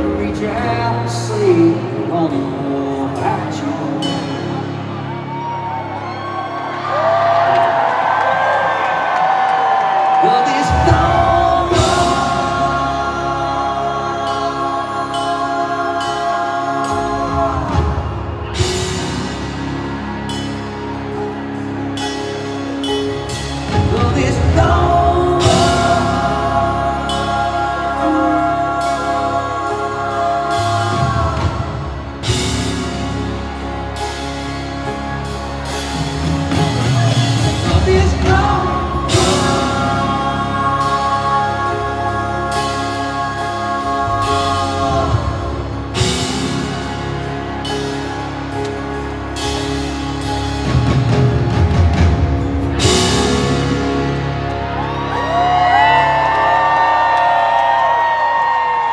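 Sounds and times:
man singing lead vocal: 0.0s - 5.5s, 10.0s - 19.5s, 23.6s - 33.2s, 36.6s - 47.3s, 52.7s - 56.6s
live country-rock band: 0.0s - 58.9s.

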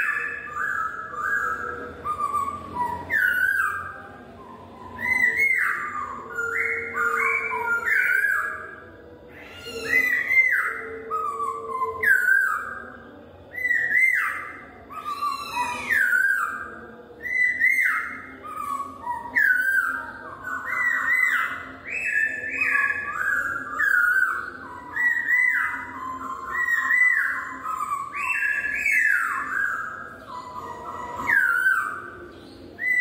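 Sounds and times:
bird singing whistled phrases: 0.0s - 33.0s.

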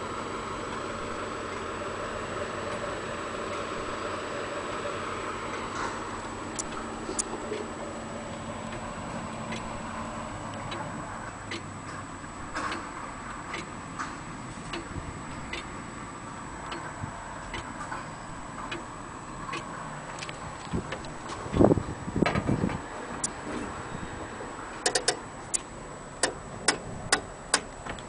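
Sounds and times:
grandfather clock ticking: 10.5s - 11.7s, 12.5s - 13.8s, 14.7s - 15.7s, 16.6s - 17.8s, 24.8s - 27.7s.

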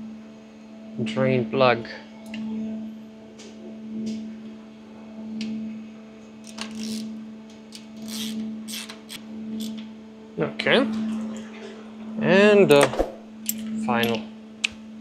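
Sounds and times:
metallic clicks and scrapes: 6.4s - 7.1s, 7.7s - 9.8s.

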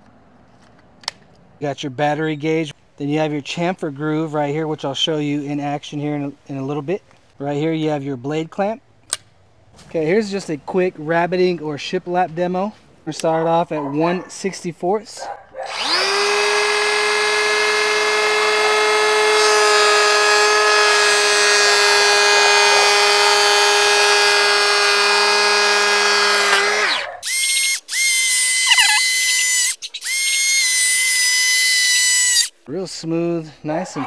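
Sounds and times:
electric planer whining: 15.7s - 32.5s.

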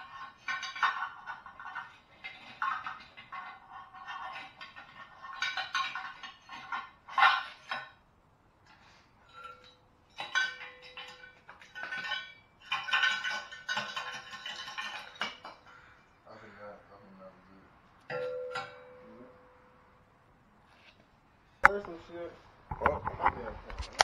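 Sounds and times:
ceramic pieces rattling in steel pipe: 0.0s - 8.0s, 9.3s - 15.7s.

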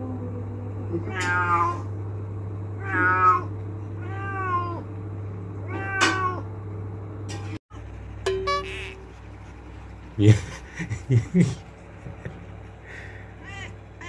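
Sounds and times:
steady low hum: 0.0s - 14.0s
cat meowing: 1.0s - 1.9s, 2.8s - 4.8s, 5.6s - 6.4s, 13.4s - 13.8s.

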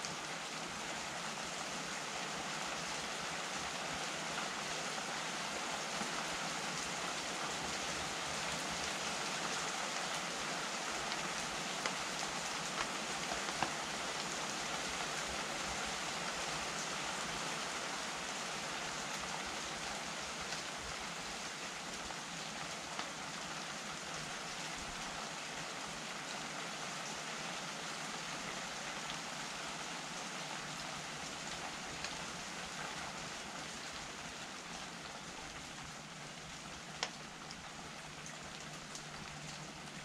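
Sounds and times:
steady rain hiss: 0.0s - 40.0s
sharp raindrop ticks: 12.7s - 13.8s, 36.9s - 39.7s.

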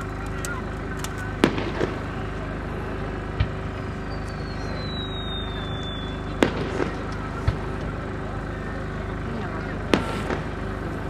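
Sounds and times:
firework burst crack: 0.1s - 2.4s, 3.0s - 8.0s, 9.8s - 11.0s
firework whistle falling in pitch: 4.1s - 6.4s.

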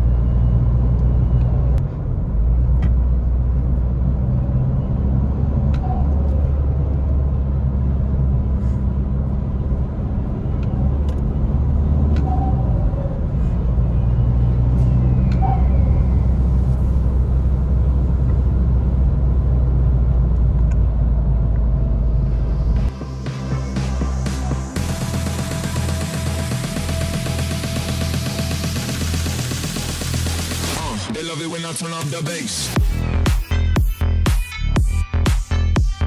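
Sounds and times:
car cabin engine and tyre rumble: 0.0s - 23.2s.

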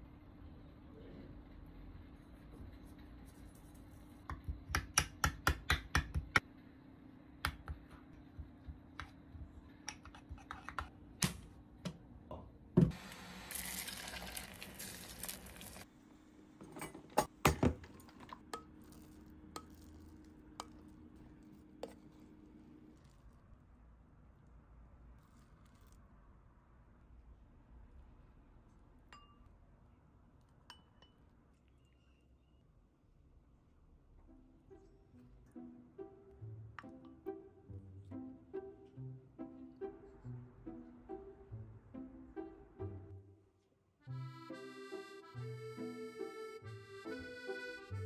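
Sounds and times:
metal spoon clinking ceramic bowl: 29.1s - 29.5s, 30.7s - 31.3s.

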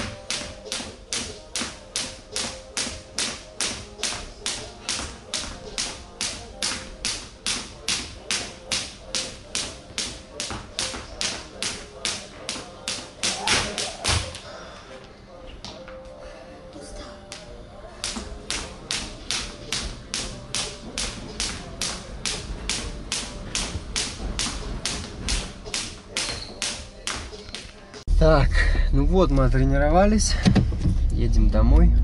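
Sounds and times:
skipping rope slapping floor: 0.0s - 14.4s, 18.0s - 27.8s.

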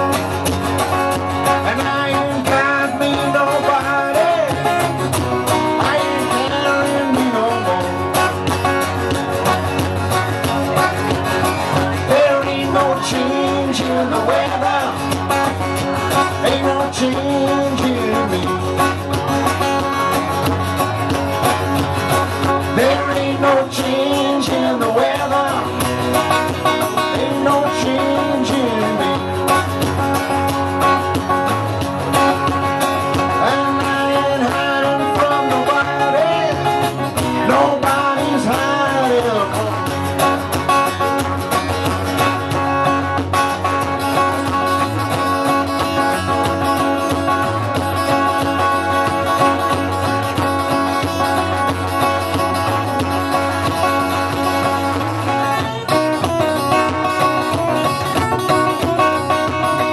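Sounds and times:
bass guitar: 0.0s - 59.9s
strummed acoustic guitars: 0.0s - 59.9s
man singing: 1.4s - 8.4s, 11.6s - 19.2s, 22.4s - 29.6s, 33.0s - 40.5s, 54.8s - 59.9s.

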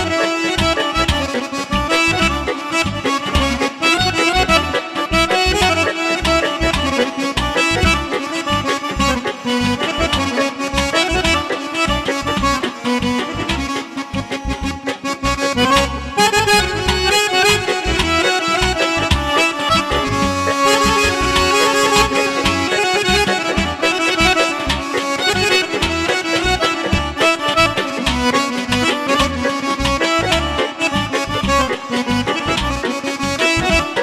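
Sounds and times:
button accordion playing folk melody: 0.0s - 34.0s
steady drum beat: 17.8s - 29.5s.

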